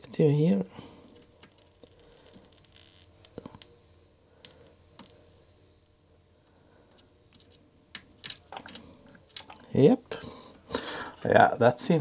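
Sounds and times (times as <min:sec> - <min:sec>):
soldering iron tips clicking: 0:04.4 - 0:06.0.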